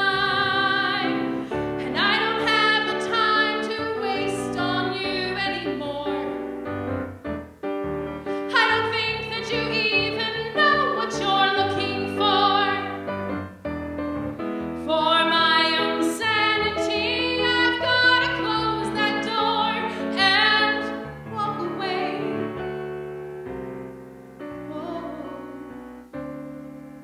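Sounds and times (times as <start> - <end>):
woman singing with vibrato: 0.0 - 6.4, 8.5 - 13.0, 14.9 - 22.4
piano accompaniment: 0.0 - 27.0.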